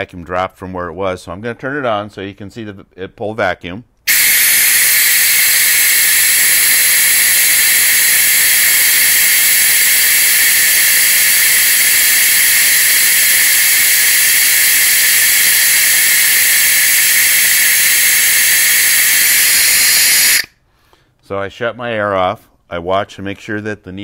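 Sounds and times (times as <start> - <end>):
venturi vacuum hissing: 4.1 - 20.5
loud high hiss: 4.1 - 20.6.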